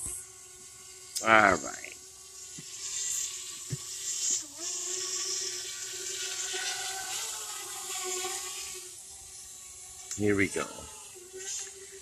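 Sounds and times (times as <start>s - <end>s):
drone propellers whining: 9.0s - 11.0s.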